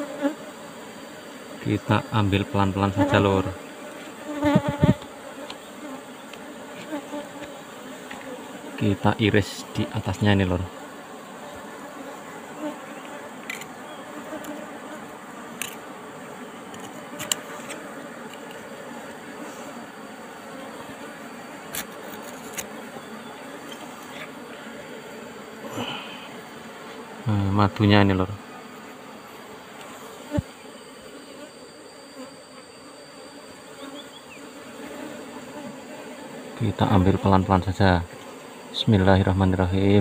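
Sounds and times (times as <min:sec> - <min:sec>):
bees humming: 0:00.0 - 0:40.0
knife scraping rock and wax: 0:16.7 - 0:18.7, 0:21.6 - 0:22.8.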